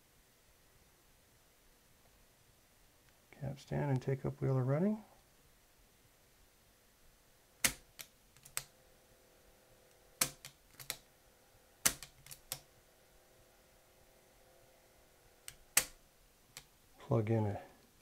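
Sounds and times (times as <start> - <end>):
sharp mechanical clicks: 11.8 - 12.6.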